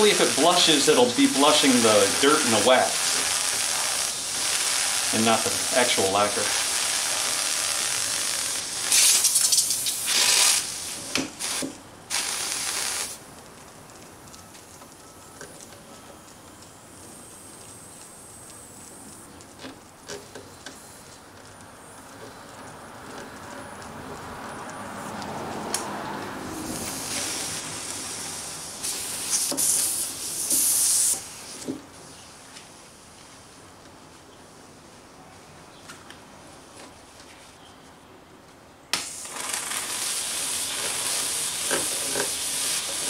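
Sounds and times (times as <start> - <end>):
steam hissing from nozzle: 0.0 - 13.2, 26.5 - 31.6, 39.0 - 43.0.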